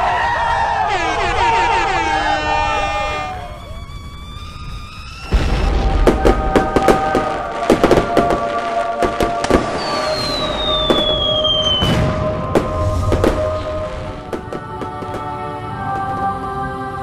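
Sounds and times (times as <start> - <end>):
sharp crackles and bangs: 3.8 - 16.3
deep boom: 5.2 - 8.5, 9.1 - 14.4.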